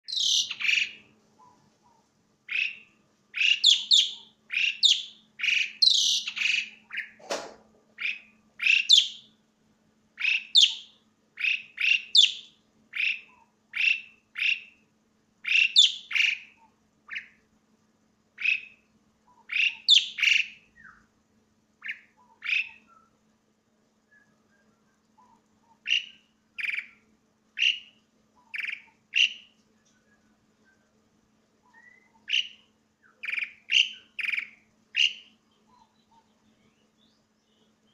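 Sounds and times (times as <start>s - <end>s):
starling calling shrilly: 0.0s - 1.0s, 3.4s - 7.2s, 8.0s - 9.2s, 10.2s - 14.7s, 15.4s - 17.3s, 18.4s - 18.8s, 19.5s - 21.0s, 21.8s - 23.0s, 25.7s - 27.0s, 27.6s - 29.5s, 31.6s - 32.6s, 33.2s - 35.3s.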